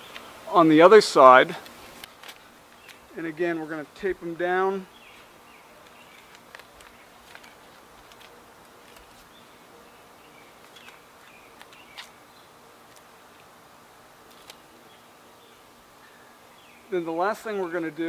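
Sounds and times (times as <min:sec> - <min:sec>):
steady low background noise: 0:00.0 - 0:18.0
tape handling clicks: 0:01.6 - 0:03.1, 0:05.1 - 0:09.3, 0:10.5 - 0:12.2, 0:12.8 - 0:13.5, 0:14.2 - 0:14.7
faint rustles: 0:04.9 - 0:13.6.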